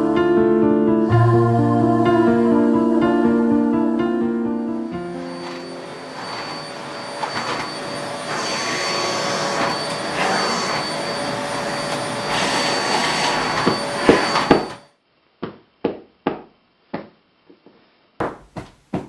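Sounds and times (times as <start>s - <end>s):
vacuum cleaner whining: 4.8s - 14.9s.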